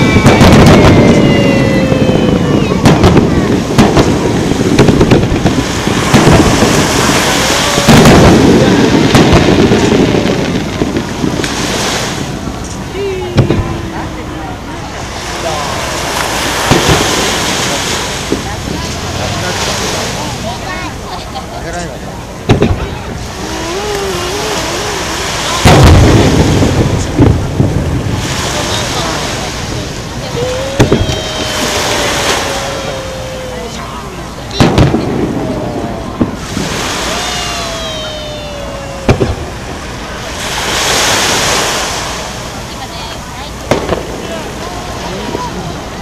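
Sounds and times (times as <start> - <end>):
firework bang: 0.0 - 14.0, 15.4 - 18.6, 22.4 - 23.0, 25.0 - 33.0, 34.5 - 38.2, 39.0 - 42.2, 43.7 - 44.6
firework cracks: 0.0 - 21.0, 22.4 - 42.6, 43.5 - 45.6
steady background noise: 0.0 - 46.0.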